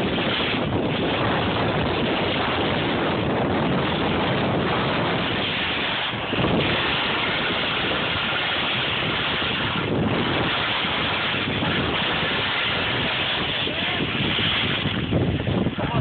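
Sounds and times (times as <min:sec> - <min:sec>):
skis hissing over snow: 0:00.0 - 0:15.2
wind rushing over microphone: 0:00.0 - 0:16.0.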